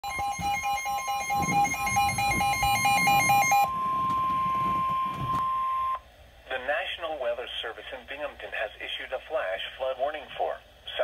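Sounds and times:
fast pulsing alarm beeps: 0.0s - 6.0s
steady warning tone: 0.0s - 6.0s.

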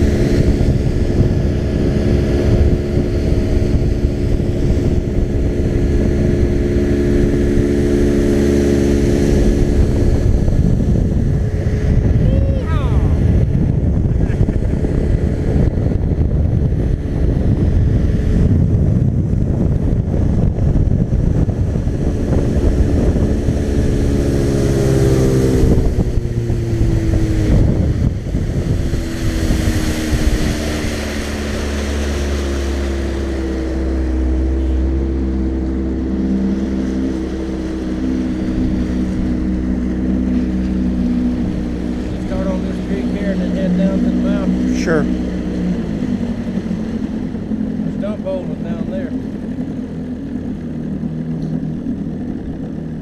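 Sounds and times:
outboard motor running: 0.0s - 53.0s
wind buffeting microphone: 0.0s - 53.0s.

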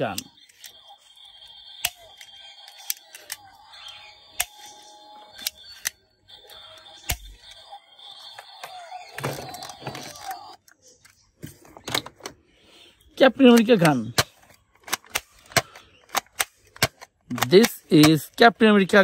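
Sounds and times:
plastic toys clattering: 0.0s - 1.2s, 1.8s - 7.2s, 8.2s - 12.4s, 13.4s - 19.0s
plastic toy gun clicks: 1.8s - 4.7s, 13.5s - 18.4s.

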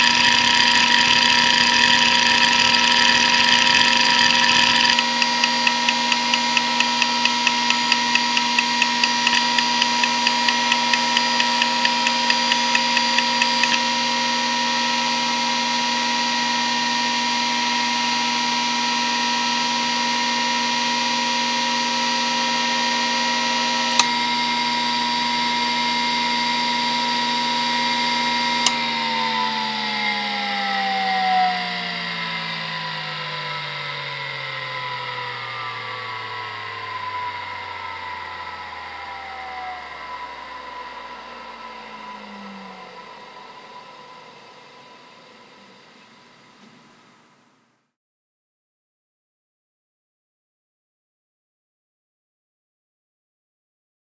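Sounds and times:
hard drive seek buzzing: 0.0s - 14.3s
hard drive platters whining: 0.0s - 47.3s.

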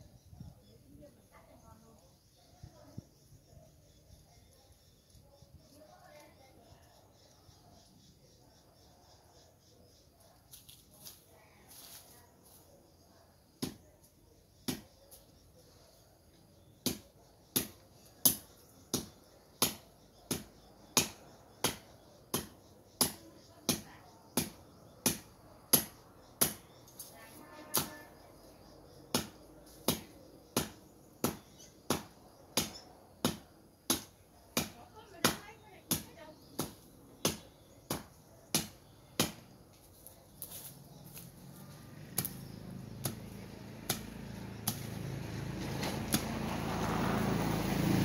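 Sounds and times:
blade chopping undergrowth: 29.1s - 39.6s, 40.3s - 47.0s.

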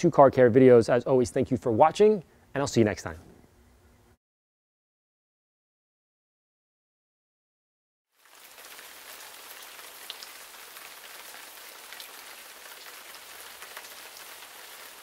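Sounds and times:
rain hiss: 8.2s - 15.0s.

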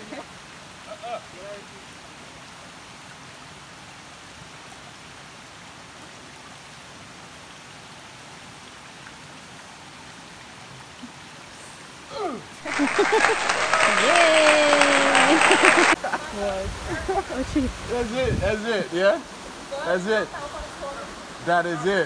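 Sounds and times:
water rushing over stones: 0.0s - 22.0s.

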